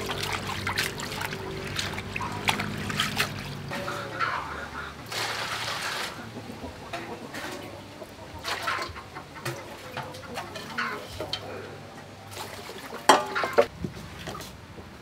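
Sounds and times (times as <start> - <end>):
water pouring from dipper: 0.0 - 3.6
water splashing in metal bowl: 0.0 - 3.8.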